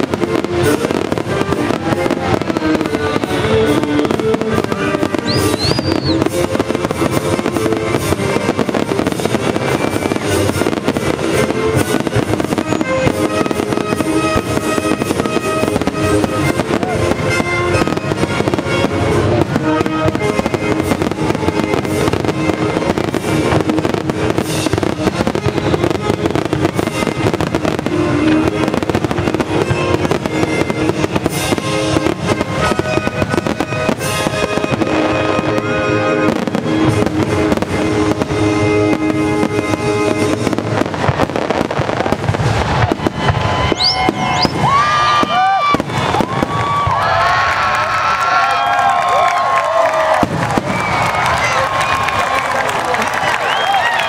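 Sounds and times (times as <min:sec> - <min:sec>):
firework shells bursting and crackling: 0:00.0 - 0:54.0
music playing: 0:00.0 - 0:54.0.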